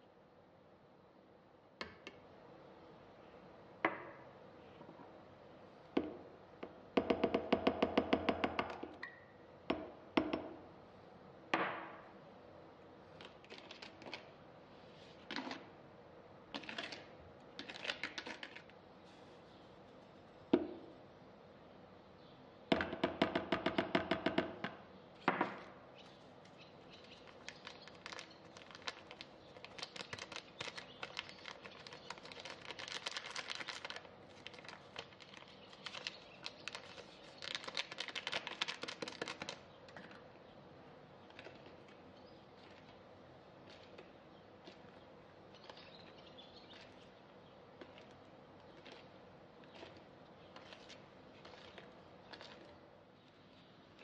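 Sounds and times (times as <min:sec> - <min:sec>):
knocks and taps on plastic bowl: 0:22.7 - 0:25.6.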